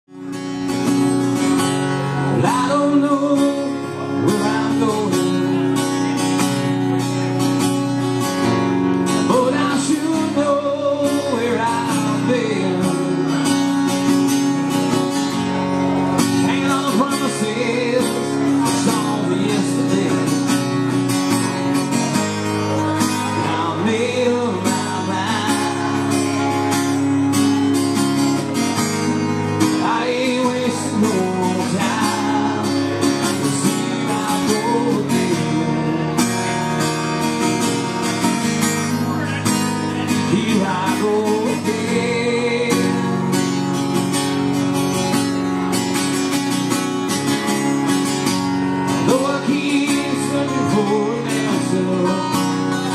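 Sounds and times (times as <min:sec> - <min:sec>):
acoustic guitars strumming chords: 0:00.1 - 0:52.9
guitar melody: 0:00.1 - 0:52.9.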